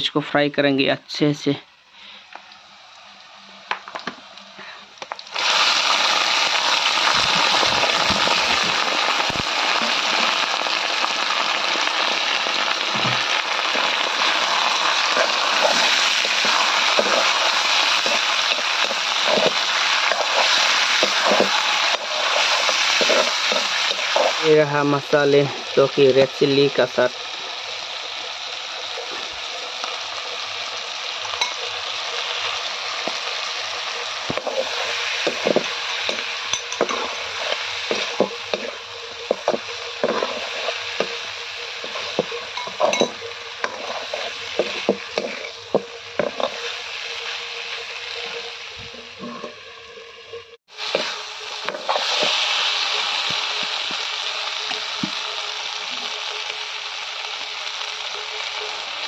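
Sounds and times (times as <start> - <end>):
meat sizzling in a wok: 1.7 - 59.0
steel spoon scraping pan: 13.7 - 24.4, 34.3 - 46.8, 48.2 - 49.8.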